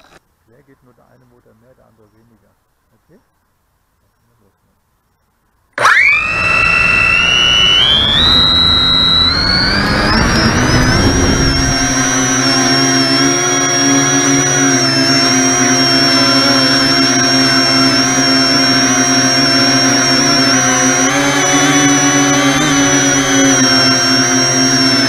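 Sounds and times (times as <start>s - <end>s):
electric motors and propellers whining: 5.8s - 25.0s
low rumble: 7.2s - 13.6s.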